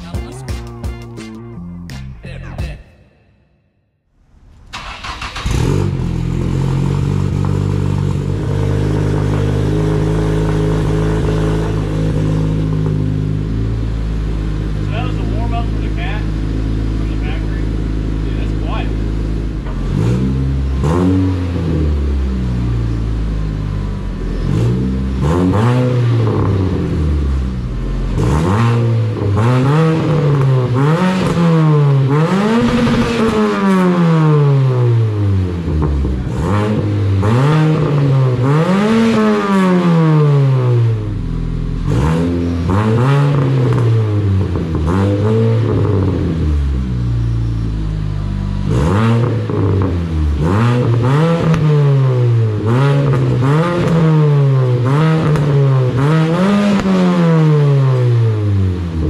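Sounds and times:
car engine idling: 0:04.1 - 0:25.2, 0:25.9 - 0:28.3, 0:34.5 - 0:56.2
car engine revving: 0:04.1 - 0:59.0.

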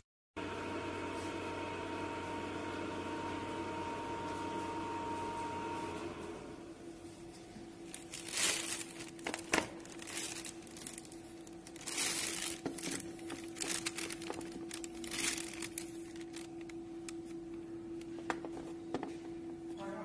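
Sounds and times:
steady hum: 0:07.6 - 0:20.0
wire crinkling and rustling: 0:07.8 - 0:18.7.

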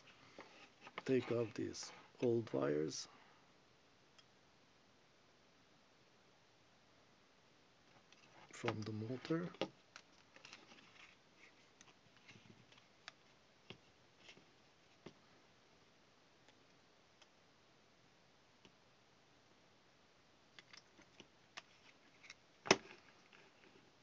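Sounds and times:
faint plastic clicks and knocks: 0:07.9 - 0:15.2.

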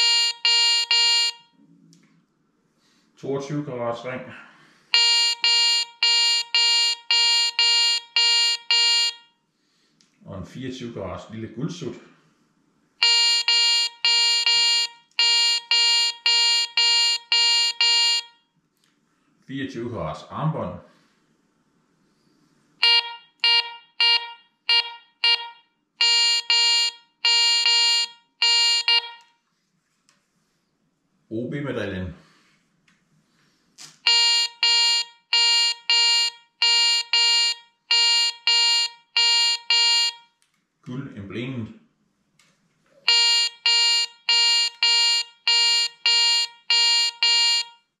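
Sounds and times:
metal detector beeping: 0:00.0 - 0:01.4, 0:22.8 - 0:29.2.

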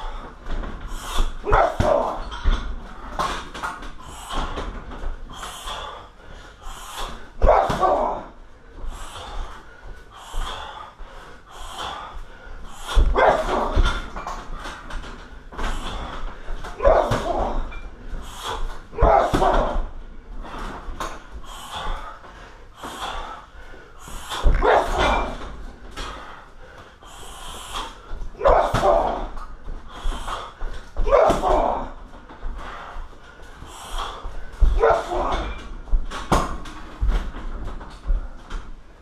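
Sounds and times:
person exhaling forcefully: 0:00.0 - 0:02.3, 0:04.0 - 0:14.7, 0:15.5 - 0:20.8, 0:21.4 - 0:32.0, 0:32.6 - 0:35.6
kicks thudding on heavy bag: 0:01.4 - 0:02.3, 0:13.0 - 0:14.3, 0:15.6 - 0:17.8, 0:18.9 - 0:20.6, 0:28.3 - 0:29.4, 0:31.0 - 0:32.1.

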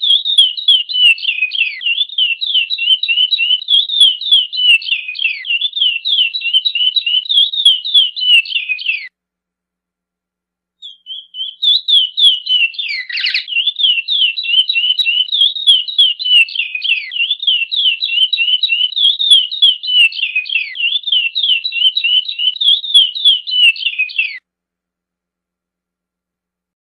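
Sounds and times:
finch singing high notes: 0:00.0 - 0:09.1, 0:10.8 - 0:24.4.

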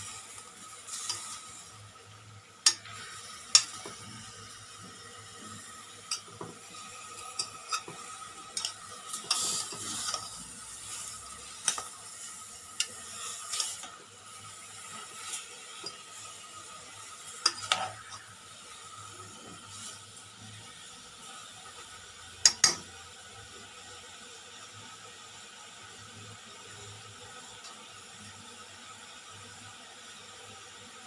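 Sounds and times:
meat sizzling: 0:00.0 - 0:25.8
spoon scraping a pot: 0:08.6 - 0:10.3, 0:17.4 - 0:18.3.

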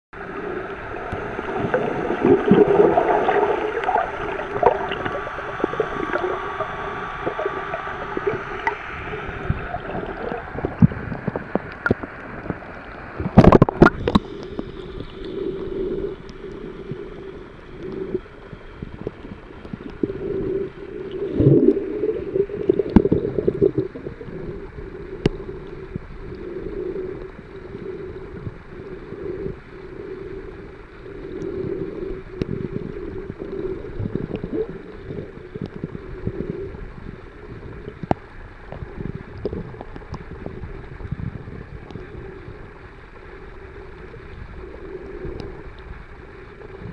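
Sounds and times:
muffled underwater water gurgling: 0:00.2 - 0:46.9
faint clicks: 0:10.1 - 0:20.2, 0:32.4 - 0:36.0, 0:37.7 - 0:41.2, 0:45.0 - 0:46.0.

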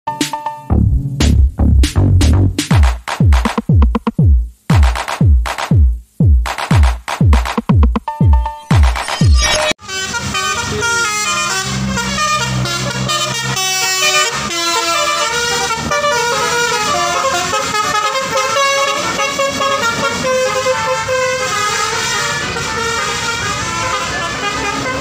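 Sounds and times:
multi-tone air horn melody: 0:08.4 - 0:25.0.

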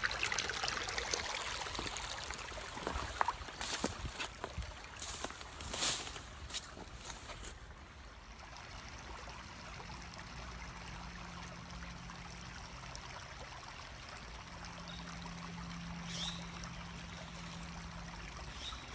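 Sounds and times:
flowing water rushing: 0:00.0 - 0:18.9.

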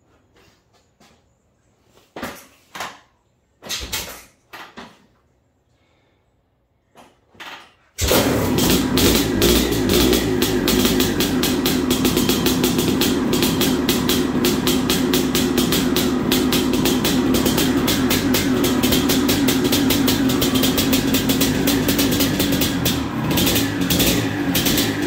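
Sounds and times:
motorcycle kick-start attempts: 0:07.6 - 0:25.0
two-stroke engine running: 0:08.0 - 0:25.0.

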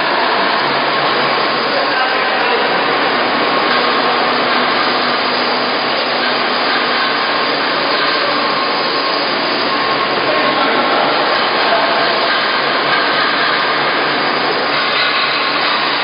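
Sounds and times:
machinery running: 0:00.0 - 0:16.0.

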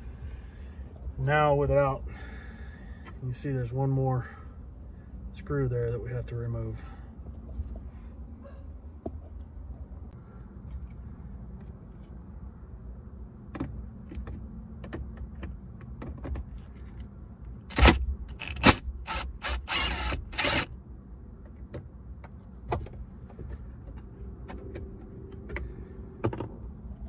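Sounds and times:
cordless driver motor whine: 0:17.7 - 0:20.7.

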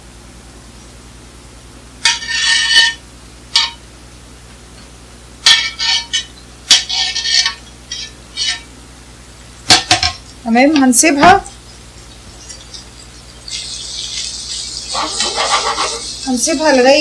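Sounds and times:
knife scraping frying pan: 0:02.0 - 0:03.0, 0:05.5 - 0:08.7, 0:12.5 - 0:17.0.

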